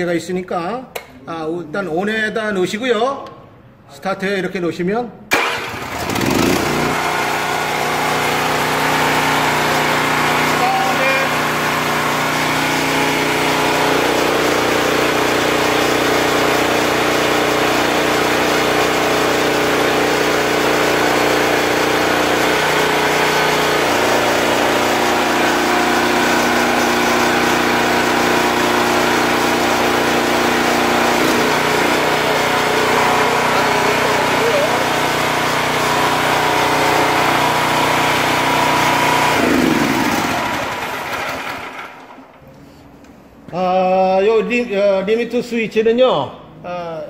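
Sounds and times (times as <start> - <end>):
small gasoline engine running: 5.3 - 42.2.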